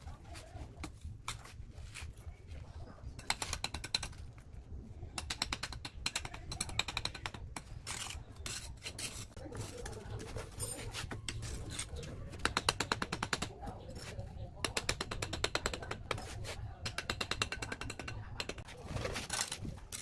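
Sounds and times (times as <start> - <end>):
trowel scraping brick and mortar: 6.1 - 20.0.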